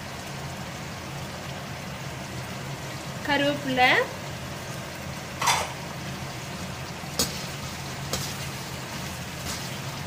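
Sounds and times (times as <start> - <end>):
onions sizzling in hot oil: 0.0 - 10.0.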